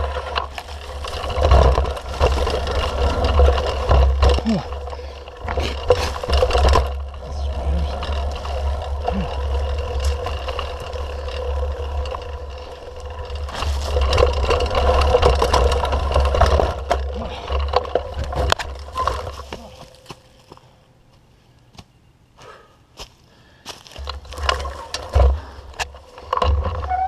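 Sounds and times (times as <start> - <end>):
low rumble: 0.0 - 19.8
bike rattling over rough ground: 0.0 - 21.2, 23.0 - 27.0.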